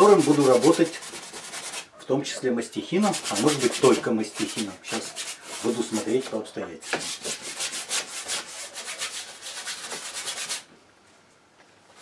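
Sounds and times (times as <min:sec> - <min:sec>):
paintbrush scrubbing on canvas: 0:00.0 - 0:01.9, 0:03.0 - 0:10.7.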